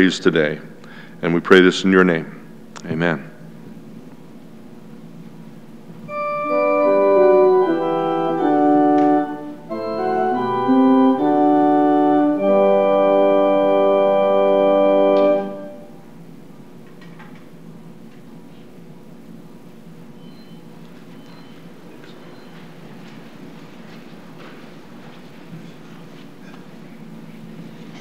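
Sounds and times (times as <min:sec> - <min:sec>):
organ playing sustained chords: 0:06.0 - 0:16.6.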